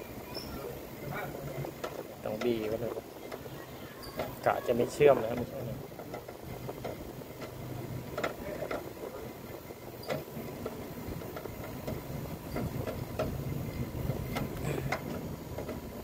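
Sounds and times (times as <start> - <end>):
air conditioner compressor hum: 0.0 - 16.0
light clicks and knocks: 1.5 - 4.5, 5.1 - 9.0, 10.0 - 16.0.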